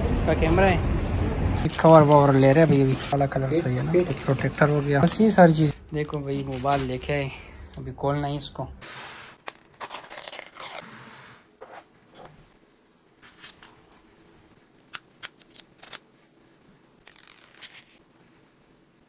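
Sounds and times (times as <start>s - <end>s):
paper strip tearing: 9.4s - 10.9s, 14.9s - 16.0s, 17.0s - 18.0s.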